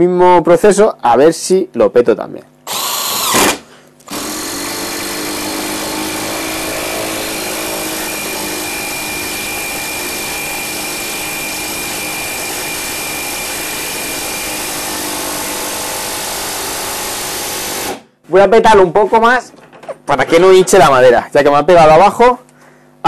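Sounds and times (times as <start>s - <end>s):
impact driver driving screw into wood: 2.7s - 18.0s.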